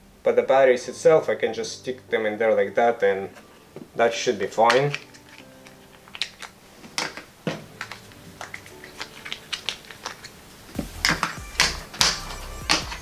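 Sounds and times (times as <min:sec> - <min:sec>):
plastic battery cases clicking: 0:04.4 - 0:13.0
plastic clacks: 0:04.6 - 0:13.0.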